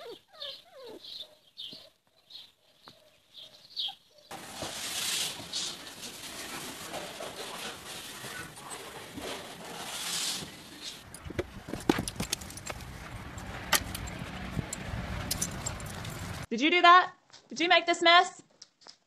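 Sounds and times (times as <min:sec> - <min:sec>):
mop swishing over wooden floor: 0:04.3 - 0:11.8
sharp clicks and knocks: 0:11.0 - 0:16.5.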